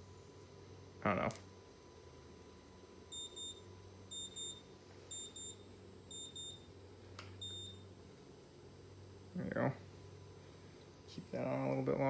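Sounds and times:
faint electrical hum: 0:00.0 - 0:12.0.

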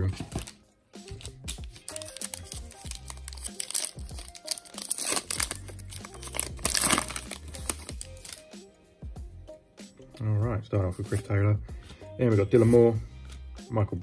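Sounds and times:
wrapper tearing and crinkling: 0:00.4 - 0:08.5.

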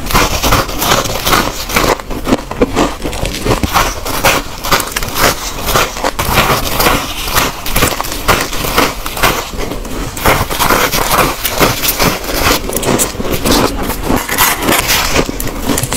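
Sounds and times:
chewing crunchy frost: 0:00.0 - 0:15.9
metal scoop scraping frost: 0:03.3 - 0:15.9.

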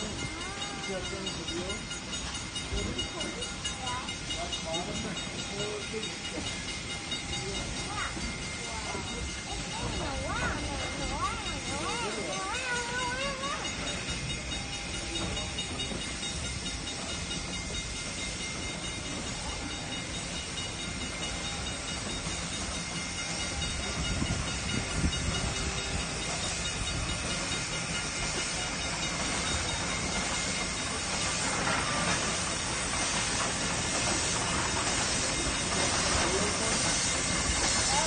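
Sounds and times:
locomotive steam hiss: 0:00.0 - 0:38.0
train cars rolling on rails: 0:00.0 - 0:38.0.

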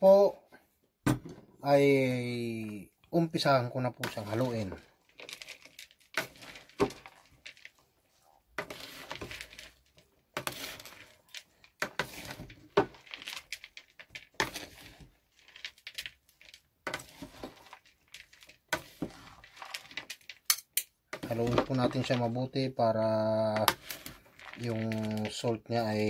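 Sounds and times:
salad leaves rustling: 0:23.5 - 0:25.5.

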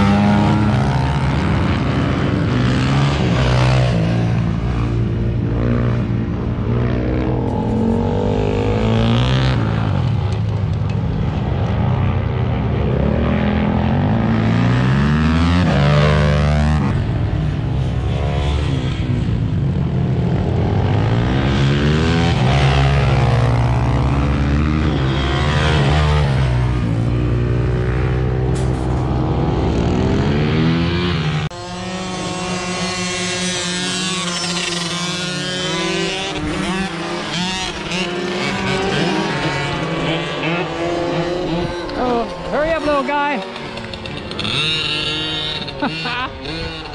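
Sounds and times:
motorcycle engines revving: 0:00.0 - 0:46.9.

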